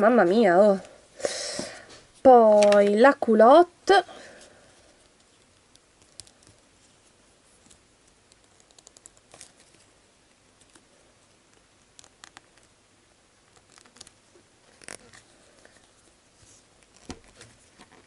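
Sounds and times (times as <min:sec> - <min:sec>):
low room hiss: 0:00.0 - 0:18.0
fingers handling plastic doll: 0:05.0 - 0:09.9.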